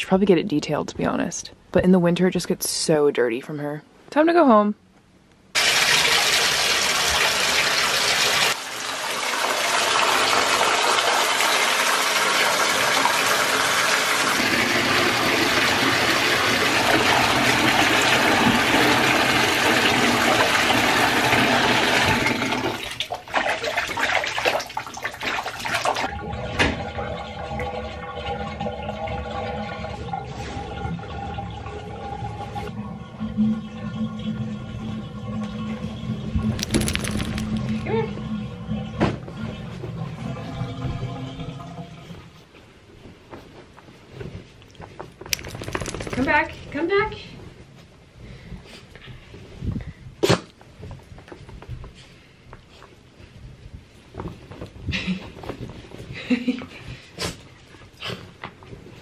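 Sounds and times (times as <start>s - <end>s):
water running into a bathtub: 5.6s - 42.4s, 45.3s - 46.5s.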